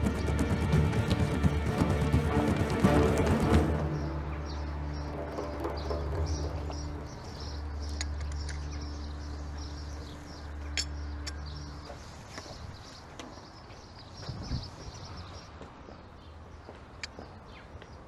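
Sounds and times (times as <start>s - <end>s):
songbirds chirping: 0.0s - 18.0s
sharp clicks: 7.8s - 8.9s.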